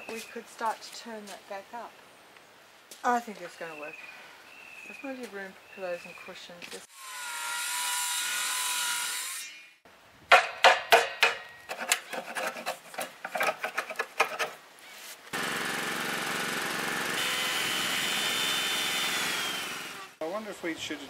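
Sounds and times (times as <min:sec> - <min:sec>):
circular saw cutting wood: 0:06.8 - 0:09.7, 0:15.3 - 0:20.2
chisel knocks and scrapes: 0:10.3 - 0:14.6
power tool running: 0:15.3 - 0:20.2.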